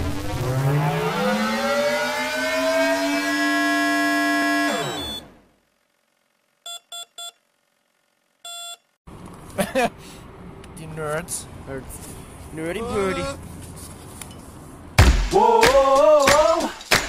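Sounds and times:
motor whine: 0:00.0 - 0:05.5
short electronic beeps: 0:04.8 - 0:05.4, 0:06.7 - 0:07.4, 0:08.5 - 0:08.9.

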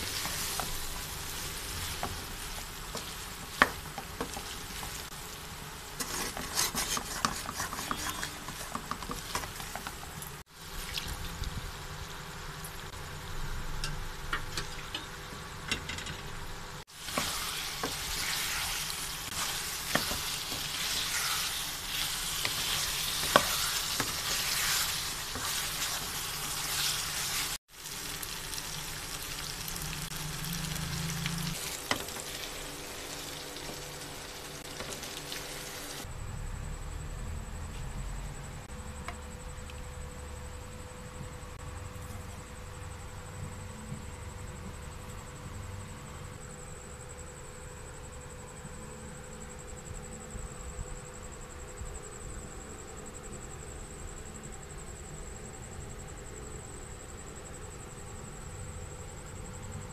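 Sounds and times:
meat sizzling in hot oil: 0:00.0 - 0:12.2, 0:16.9 - 0:36.1
wooden spatula scraping pan: 0:06.0 - 0:10.1, 0:17.0 - 0:27.6.

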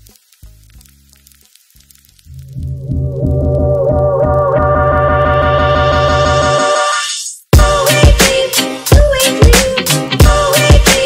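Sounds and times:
background music: 0:02.3 - 0:11.0.

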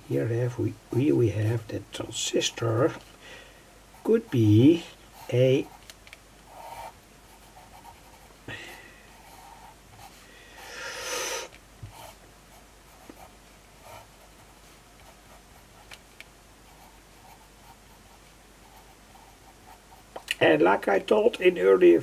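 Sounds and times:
pencil scratching on paper: 0:06.5 - 0:08.4, 0:09.1 - 0:10.2, 0:11.8 - 0:15.9, 0:16.6 - 0:20.1.

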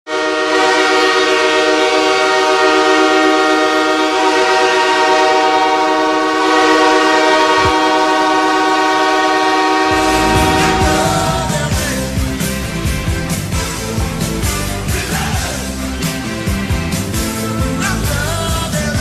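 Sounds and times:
arena goal horn blast: 0:00.1 - 0:12.0.

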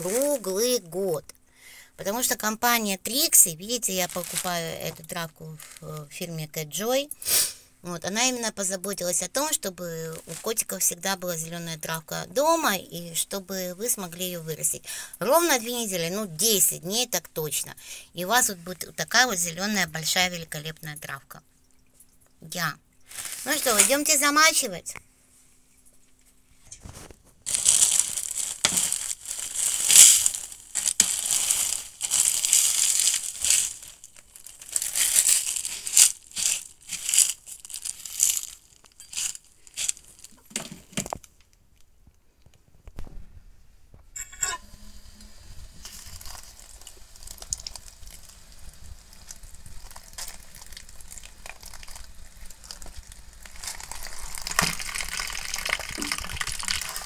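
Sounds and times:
seeds shaken into plastic tray: 0:00.0 - 0:00.7, 0:03.7 - 0:06.1, 0:23.1 - 0:24.3, 0:27.5 - 0:40.2, 0:53.7 - 0:57.0
plastic bag crinkling: 0:00.0 - 0:01.2, 0:03.0 - 0:07.0, 0:09.4 - 0:11.6, 0:23.0 - 0:24.8, 0:26.8 - 0:41.4, 0:45.5 - 0:57.0
water pouring: 0:44.8 - 0:57.0.

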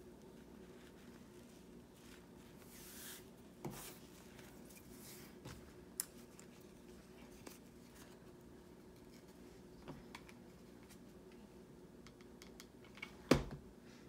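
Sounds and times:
low steady hum: 0:00.0 - 0:14.0
ribbon rustling: 0:00.1 - 0:09.6.

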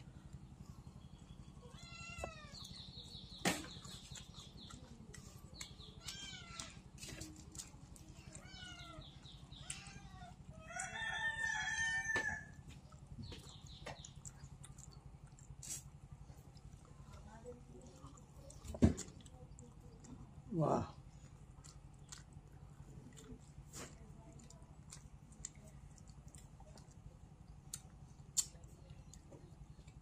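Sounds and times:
animals calling: 0:00.0 - 0:16.2
steady low hum: 0:00.0 - 0:30.0.

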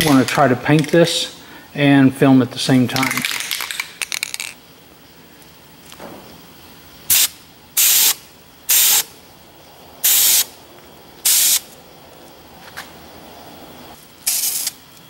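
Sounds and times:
spray paint can hissing: 0:07.1 - 0:09.1, 0:10.0 - 0:10.5, 0:11.2 - 0:11.8, 0:14.2 - 0:15.0.

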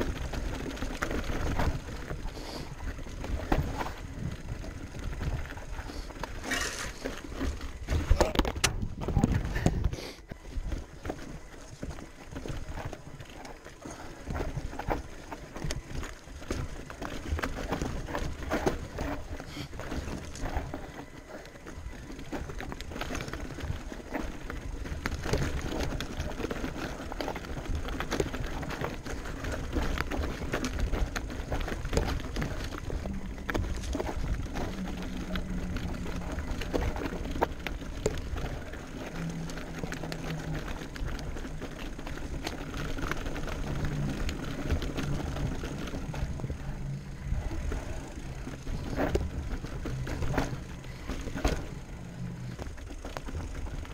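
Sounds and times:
bike clattering over rocks: 0:00.0 - 0:53.9
steady low rumble: 0:32.2 - 0:53.9.

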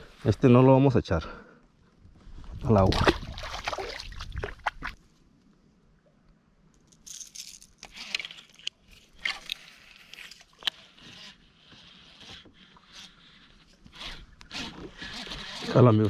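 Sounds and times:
hands handling fishing rod and reel: 0:06.7 - 0:16.0.

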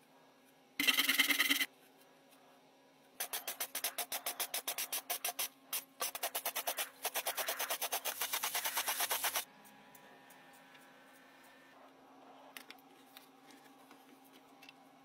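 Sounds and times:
spray can shaken with ball clacking: 0:03.2 - 0:09.5.

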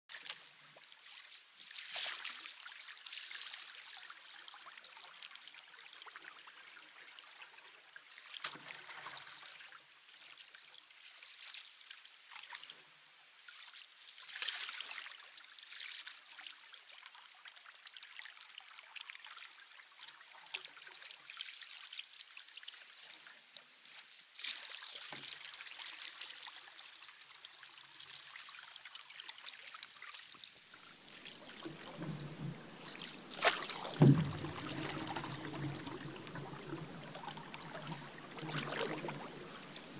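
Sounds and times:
water rushing past paddle: 0:30.9 - 0:39.9.

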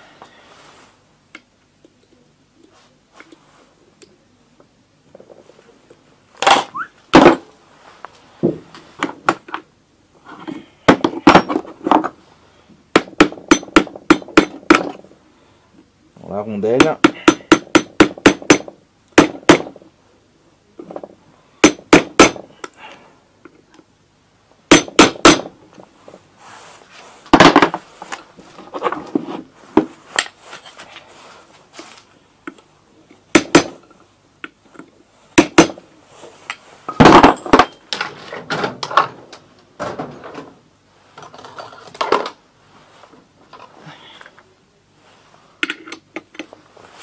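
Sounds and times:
hammer striking metal punch: 0:16.8 - 0:19.7, 0:24.7 - 0:25.5.

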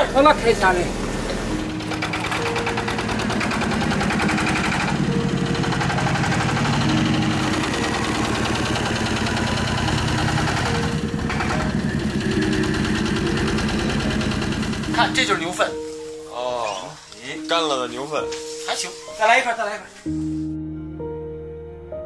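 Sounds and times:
vehicle engine running steadily: 0:01.0 - 0:15.0.

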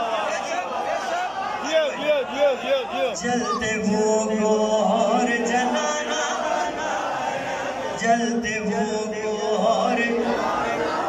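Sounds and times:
man chanting into a microphone: 0:02.7 - 0:06.6, 0:07.9 - 0:10.9.

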